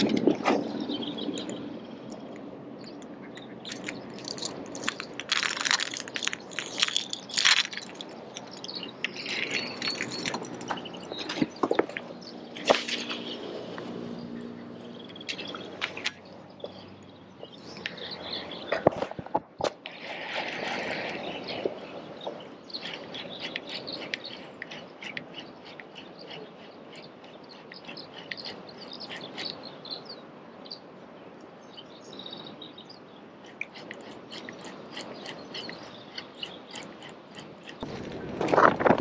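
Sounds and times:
small birds chirping: 0:00.0 - 0:19.3, 0:20.0 - 0:38.2
lure being reeled in: 0:03.4 - 0:14.0.

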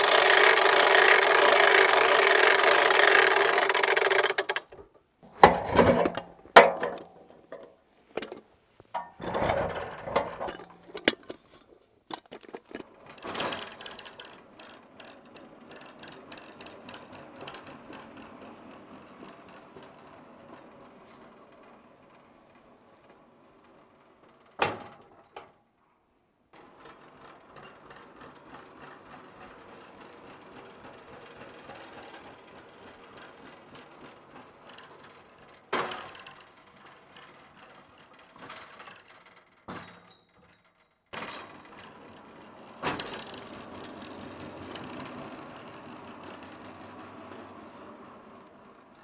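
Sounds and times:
metal knocks and clanks: 0:04.7 - 0:11.5.

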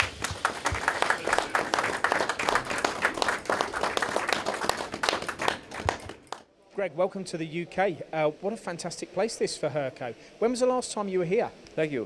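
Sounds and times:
crowd applauding: 0:00.0 - 0:06.5.

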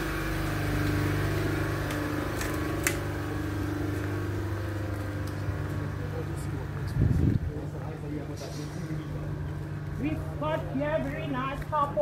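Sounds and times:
low machine hum: 0:00.0 - 0:12.0.

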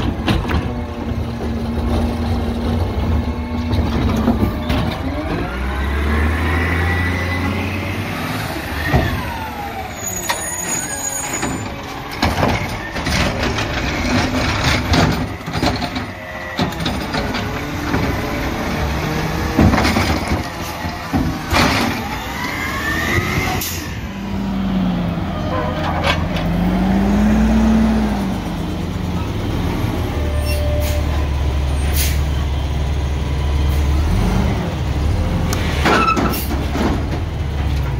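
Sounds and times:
carts knocking and banging: 0:00.0 - 0:05.7, 0:10.2 - 0:24.0, 0:25.4 - 0:27.0, 0:35.6 - 0:37.9
truck engine revving: 0:00.0 - 0:37.9.

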